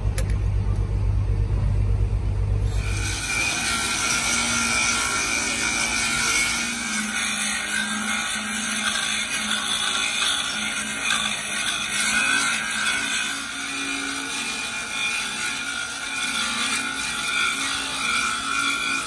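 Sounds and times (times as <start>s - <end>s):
low steady hum: 0.0s - 6.0s
angle grinder grinding steel: 2.6s - 19.0s.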